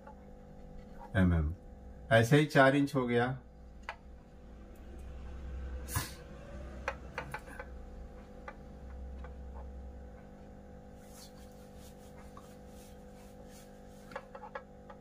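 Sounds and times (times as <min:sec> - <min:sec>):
low hum: 0:03.4 - 0:11.6
marker tapping on whiteboard: 0:06.8 - 0:10.3, 0:13.9 - 0:15.0.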